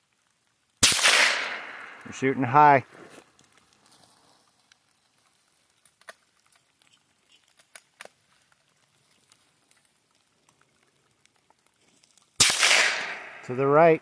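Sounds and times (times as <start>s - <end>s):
raindrops pattering: 0.0s - 14.0s.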